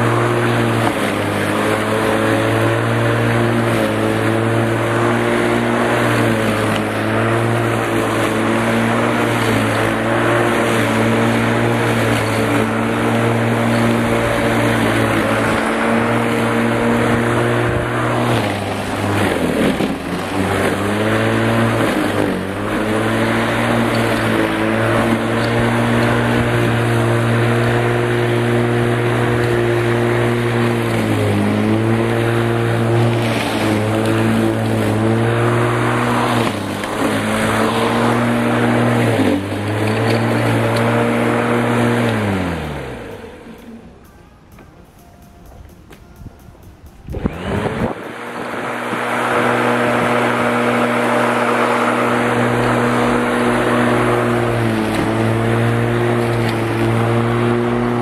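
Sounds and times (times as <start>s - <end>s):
mower motor winding down: 0.0s - 44.0s, 47.0s - 58.0s
electric lawn mower cutting grass: 0.0s - 44.1s, 47.0s - 58.0s.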